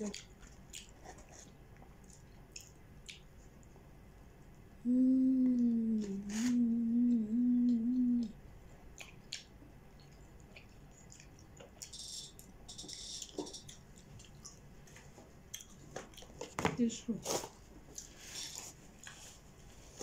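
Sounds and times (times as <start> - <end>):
chewing clicks and mouth noises: 0.0 - 3.8, 8.9 - 16.6, 17.9 - 19.2
woman humming: 4.8 - 8.4.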